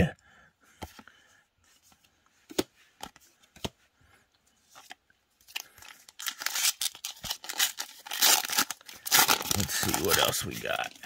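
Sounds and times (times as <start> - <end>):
foil wrapper crinkling and tearing: 5.5 - 11.0.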